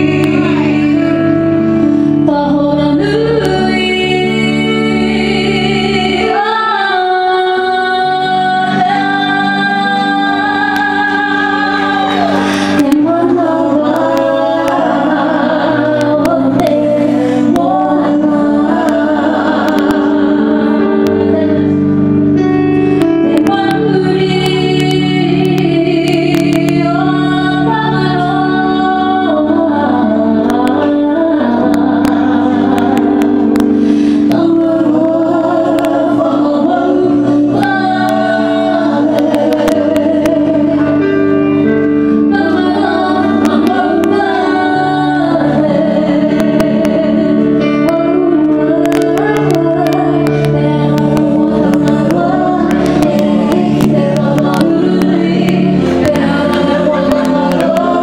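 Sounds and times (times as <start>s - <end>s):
women singing in harmony: 0.0s - 22.4s, 23.1s - 58.0s
electric keyboard chords: 0.0s - 58.0s.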